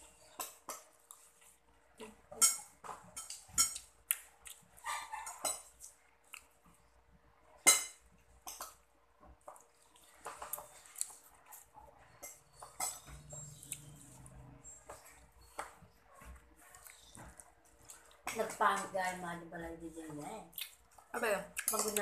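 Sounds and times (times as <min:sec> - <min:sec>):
chewing and mouth smacking: 0:03.3 - 0:06.8, 0:09.5 - 0:11.7, 0:16.7 - 0:18.3, 0:20.5 - 0:22.0.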